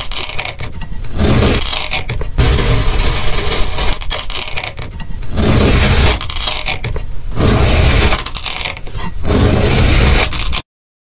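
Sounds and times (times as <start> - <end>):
knife slicing kinetic sand: 1.1 - 4.6, 5.3 - 10.6.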